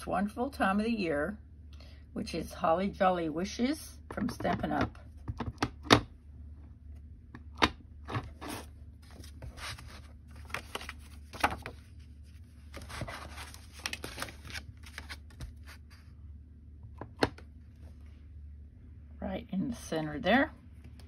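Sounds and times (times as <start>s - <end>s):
paper rustling and sliding: 8.2s - 16.1s.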